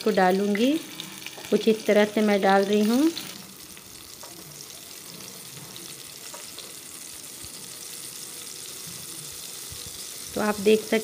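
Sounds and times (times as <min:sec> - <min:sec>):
vegetables sizzling in hot oil: 0:00.0 - 0:11.0.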